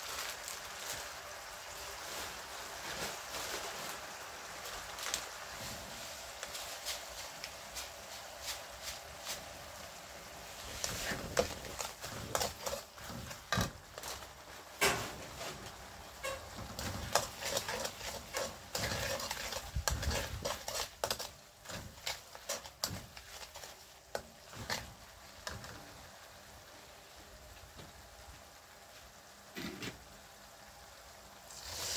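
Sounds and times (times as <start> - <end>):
low sizzle: 0.0 - 31.9
spatula scraping a wok: 10.4 - 26.1.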